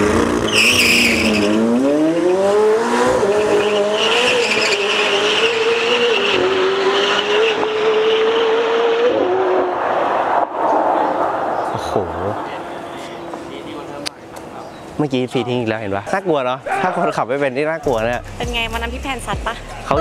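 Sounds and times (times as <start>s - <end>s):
car engine accelerating: 0.0s - 14.9s
tyres squealing: 0.5s - 2.4s, 3.3s - 6.4s.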